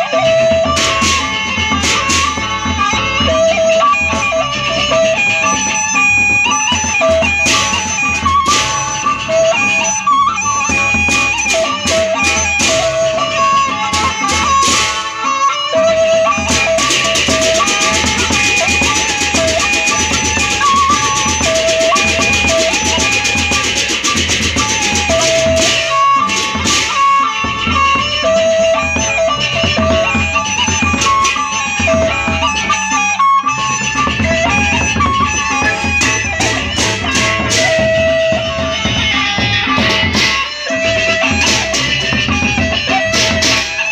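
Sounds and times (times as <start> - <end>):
bamboo flute melody: 0.0 - 43.9
big barrel drums beating: 0.0 - 43.9
hand cymbals clashing: 0.7 - 28.1.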